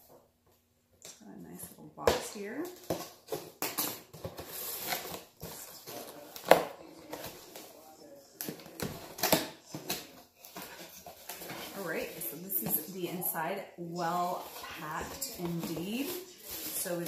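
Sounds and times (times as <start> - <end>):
cardboard rustling and scraping: 2.8 - 7.8, 8.4 - 17.0.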